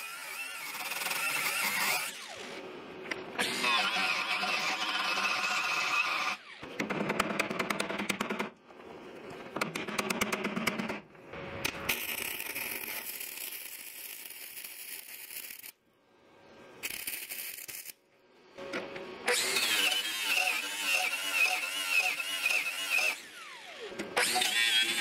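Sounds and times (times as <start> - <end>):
welding arc crackling and hissing: 11.9 - 15.8
angle grinder whining: 19.3 - 25.0.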